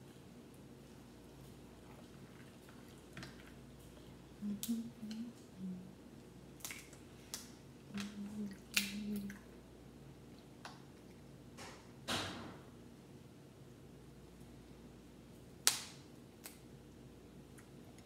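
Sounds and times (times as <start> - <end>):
wet squishing: 1.4 - 5.3, 6.6 - 9.5.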